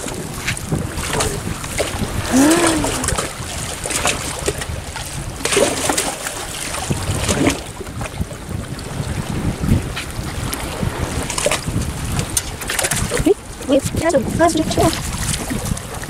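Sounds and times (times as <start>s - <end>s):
waves splashing against rocks: 0.0s - 16.0s
wind on microphone: 0.0s - 16.0s
short voice-like call: 2.2s - 3.2s.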